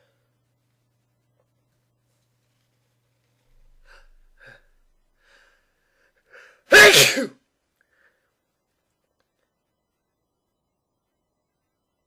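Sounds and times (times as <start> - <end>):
person sneezing: 6.7 - 7.4.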